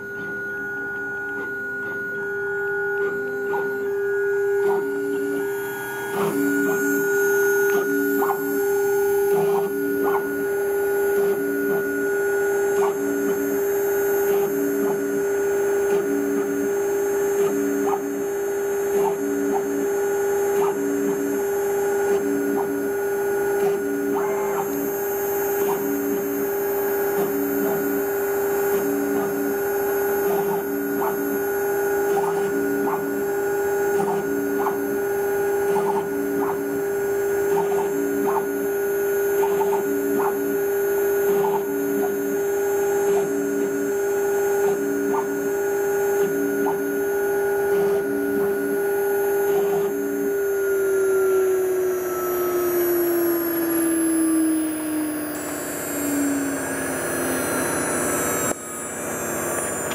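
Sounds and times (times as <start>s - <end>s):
axis motors moving: 0.0s - 59.9s
router spindle high whine: 0.0s - 59.9s.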